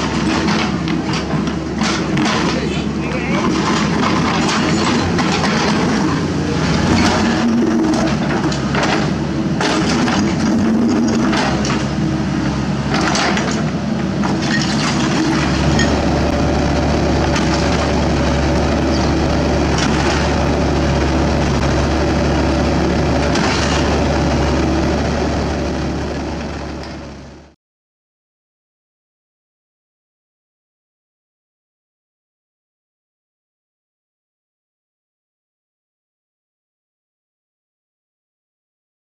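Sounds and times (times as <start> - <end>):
excavator diesel engine running: 0.0 - 27.6.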